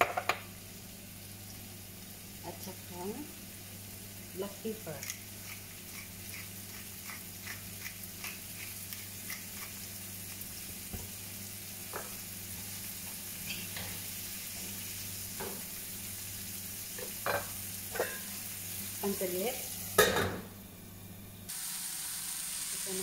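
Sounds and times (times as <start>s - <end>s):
vegetables sizzling in oil: 0.0s - 20.8s, 21.4s - 23.0s
pepper mill grinding: 4.7s - 10.6s.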